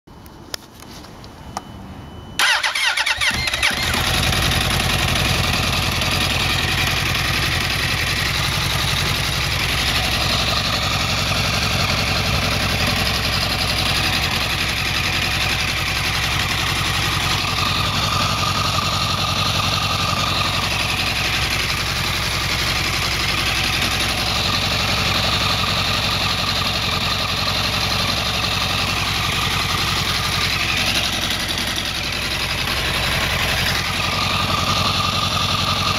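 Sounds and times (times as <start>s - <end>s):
motorcycle starter cranking: 2.4s - 6.1s
engine ticking: 2.4s - 35.9s
motorcycle engine idling: 2.4s - 35.9s.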